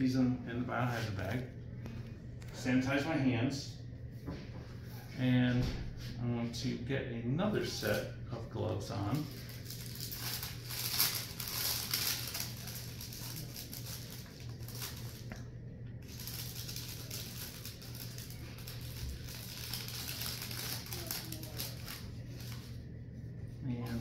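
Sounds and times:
steady low hum: 0.0 - 24.0
paper crinkling and rustling: 9.1 - 15.4, 16.0 - 22.8.

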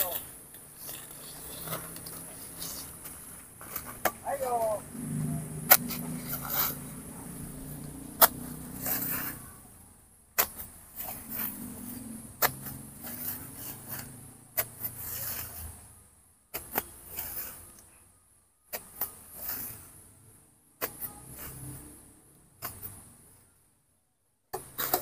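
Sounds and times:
plastic rustling and scraping: 0.0 - 4.2.

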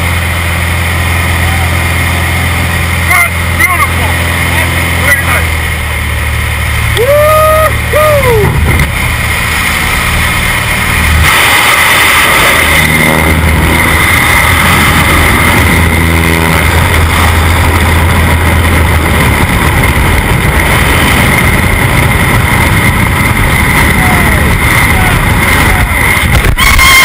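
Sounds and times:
small plane engine droning: 0.0 - 27.0
wind rushing: 8.2 - 27.0.

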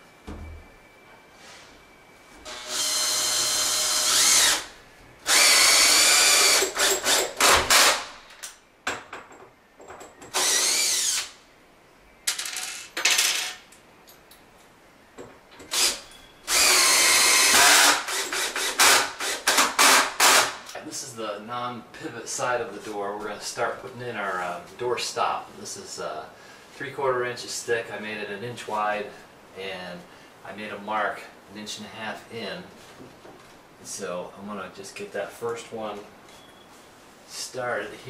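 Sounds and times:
cordless drill driving screws: 2.5 - 8.1, 10.3 - 11.4, 15.7 - 20.6
drill trigger bursts: 2.5 - 8.1, 10.3 - 11.4, 15.7 - 20.7.

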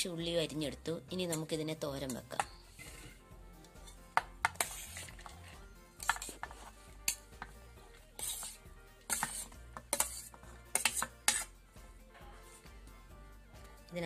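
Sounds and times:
metal spoon scraping steel plate: 2.0 - 11.5.

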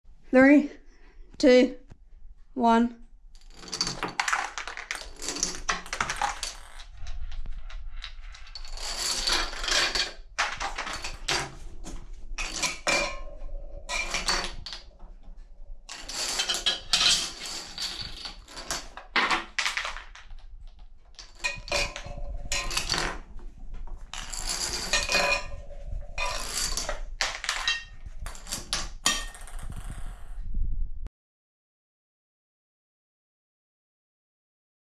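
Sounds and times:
dominoes clattering on wooden table: 3.4 - 11.6, 12.4 - 14.9, 15.9 - 23.3, 24.0 - 30.4.

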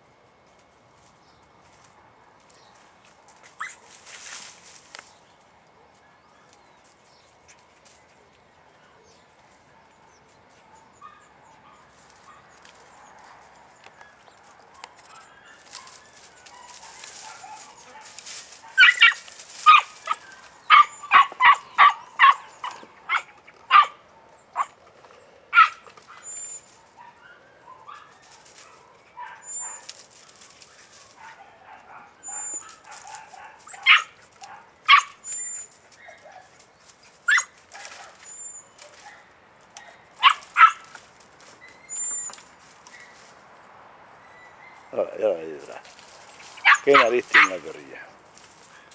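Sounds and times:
puppy yapping: 3.6 - 3.8, 14.8 - 24.0, 25.5 - 29.9, 30.8 - 36.5, 37.2 - 41.0, 46.5 - 47.7.

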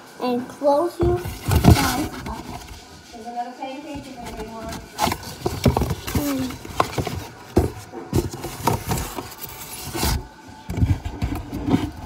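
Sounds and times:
cardboard box knocking: 1.0 - 2.7, 4.2 - 9.5
cardboard rustling: 1.0 - 12.0.

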